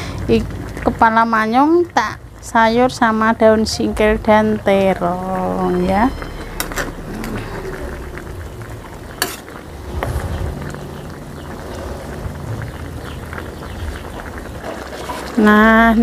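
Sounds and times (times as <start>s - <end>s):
soup bubbling in a wok: 0.0s - 3.3s, 5.8s - 16.0s
ladle scraping wok: 5.7s - 12.8s, 14.4s - 15.4s.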